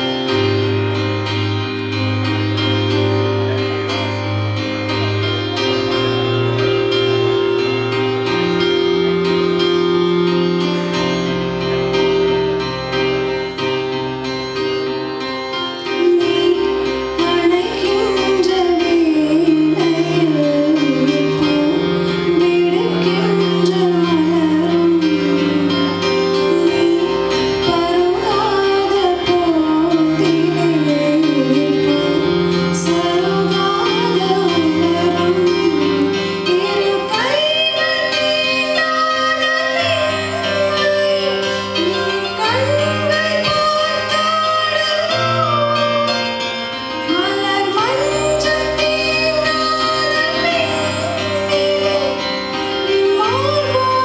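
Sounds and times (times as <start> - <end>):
electronic keyboard chords: 0.0 - 54.0
woman singing into microphone: 15.8 - 54.0.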